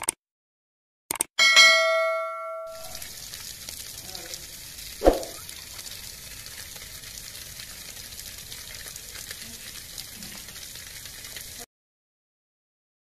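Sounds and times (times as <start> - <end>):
water pouring from a tap: 2.7 - 11.7.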